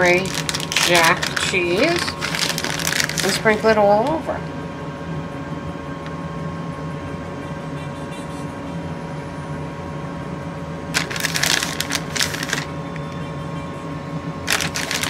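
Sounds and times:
crinkly rustling: 0.0s - 4.2s, 11.0s - 12.8s, 14.5s - 15.0s
faint electrical hum: 0.0s - 15.0s.

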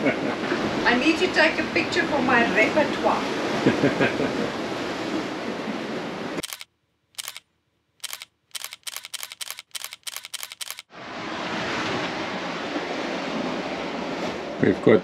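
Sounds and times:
wind and sea noise: 0.0s - 6.5s, 10.3s - 15.0s
camera shutter clicks: 6.4s - 7.4s, 8.0s - 10.9s.

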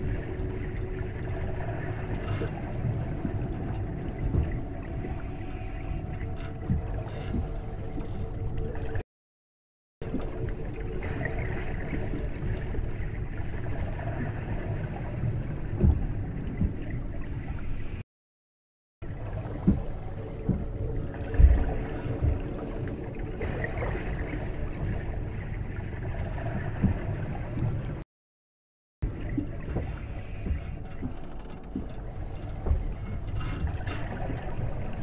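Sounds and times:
steady low rumble: 0.0s - 9.0s, 10.0s - 18.0s, 19.0s - 28.0s, 29.0s - 35.0s
water gurgling: 10.0s - 17.8s, 19.0s - 28.0s, 29.0s - 35.0s.

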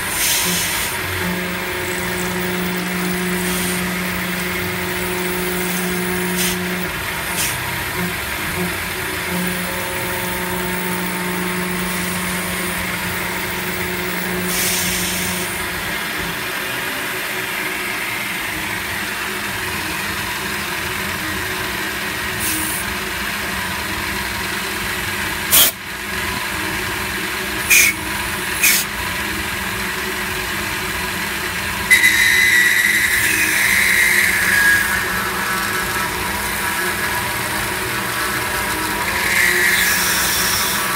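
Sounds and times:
milling machine cutting metal: 0.0s - 40.9s
high squeal with falling pitch: 31.9s - 40.9s.

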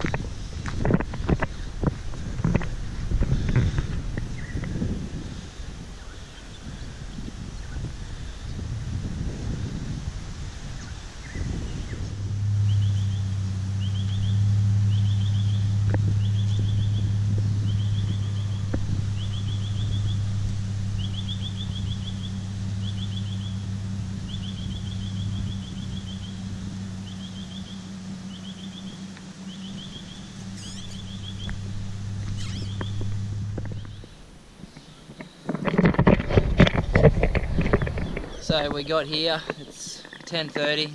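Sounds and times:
vehicle engine humming: 0.0s - 40.9s
high chirping trills: 10.8s - 35.1s.

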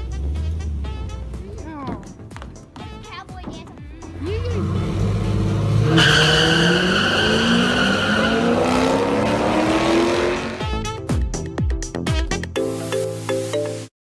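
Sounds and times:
car engines revving: 4.0s - 10.7s
tires squealing: 4.1s - 10.7s.

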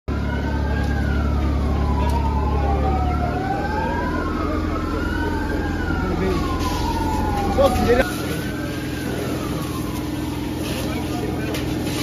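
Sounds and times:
emergency sirens wailing: 0.1s - 12.0s
low engine rumble: 0.1s - 12.0s.

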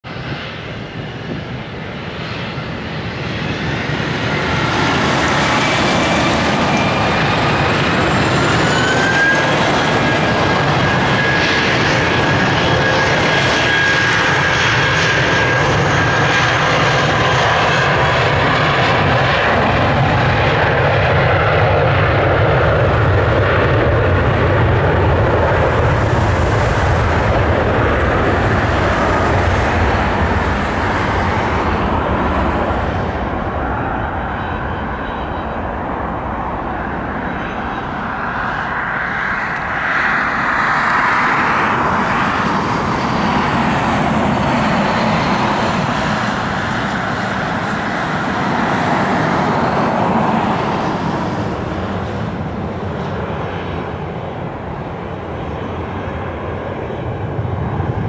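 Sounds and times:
jet engines spooling up: 0.1s - 58.0s.

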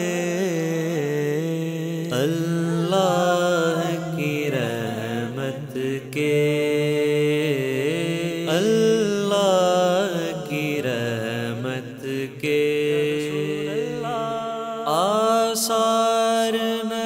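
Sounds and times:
man singing: 0.0s - 17.0s.

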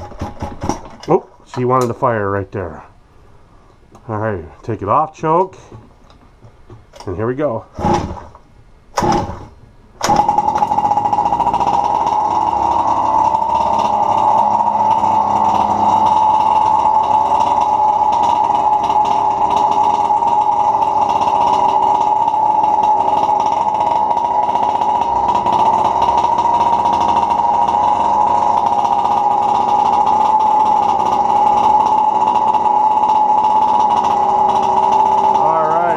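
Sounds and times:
recoil starter pull: 0.0s - 2.0s, 7.7s - 35.9s
two-stroke engine idling: 9.0s - 35.9s.

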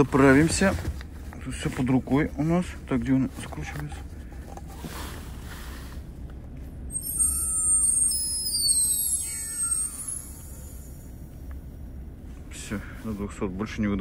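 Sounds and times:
high-pressure air hissing and whistling: 6.9s - 11.3s.

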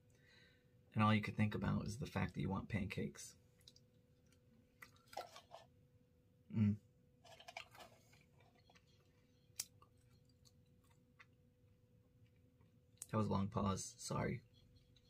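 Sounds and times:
person chewing food: 3.5s - 5.7s, 7.2s - 13.1s
low throat hum: 6.5s - 6.9s.

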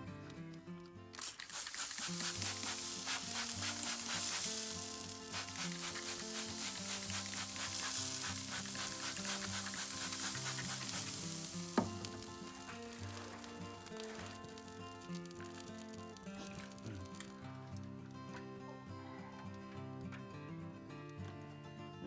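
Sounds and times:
background music: 0.0s - 22.0s
meat sizzling on grill: 1.2s - 18.1s.

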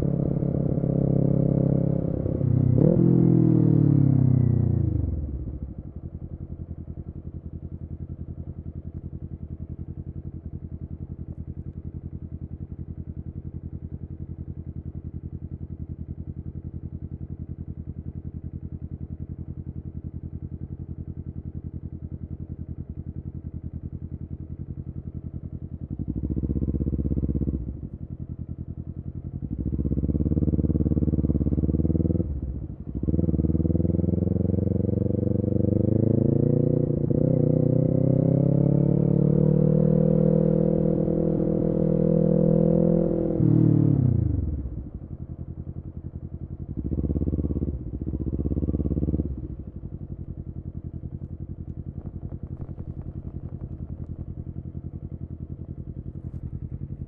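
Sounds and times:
motorcycle engine revving: 0.0s - 6.1s, 23.6s - 57.0s
motorcycle idling: 4.6s - 35.0s, 44.1s - 57.0s.

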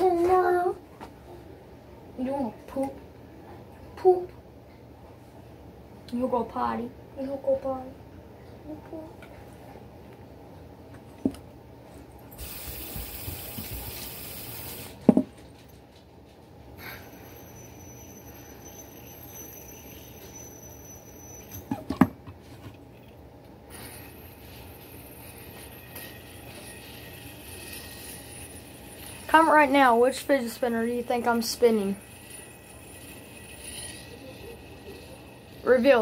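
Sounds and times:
faint high whine: 16.8s - 22.1s, 23.0s - 36.0s
fidget spinner clicks and knocks: 24.4s - 36.0s.

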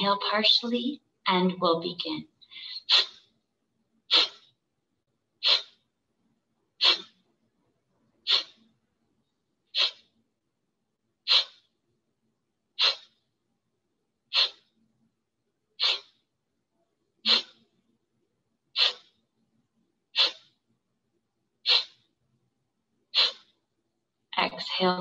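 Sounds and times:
forceful exhalations through nose: 6.8s - 7.1s, 8.3s - 8.6s, 9.8s - 10.1s, 11.3s - 11.6s, 12.8s - 13.1s, 14.3s - 14.6s, 15.8s - 16.1s, 17.3s - 17.6s, 20.2s - 20.5s, 21.7s - 22.0s, 23.2s - 23.5s.

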